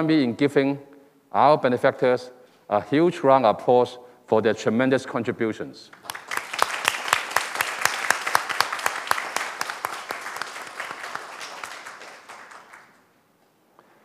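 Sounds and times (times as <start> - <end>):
audience applauding: 6.0 - 13.1.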